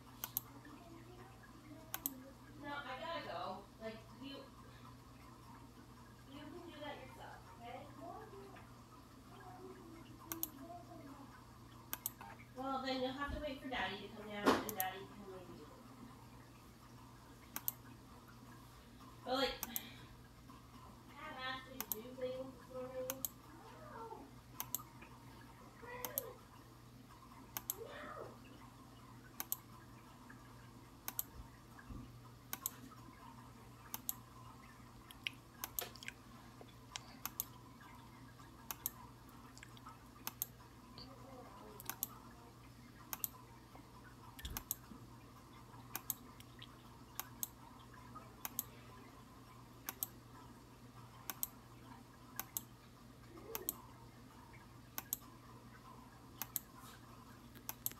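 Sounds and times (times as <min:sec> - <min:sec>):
low steady hum: 0:00.0 - 0:57.9
sharp clicks: 0:01.9 - 0:02.2, 0:11.9 - 0:12.3, 0:17.5 - 0:17.9, 0:24.6 - 0:24.9, 0:27.5 - 0:27.8, 0:29.4 - 0:29.6, 0:32.5 - 0:32.8, 0:33.9 - 0:34.2, 0:36.9 - 0:37.6, 0:38.7 - 0:39.0, 0:39.6 - 0:40.5, 0:41.8 - 0:42.2, 0:43.1 - 0:43.4, 0:44.4 - 0:44.8, 0:45.9 - 0:47.6, 0:49.9 - 0:50.2, 0:55.0 - 0:55.3, 0:56.4 - 0:56.7, 0:57.5 - 0:57.9.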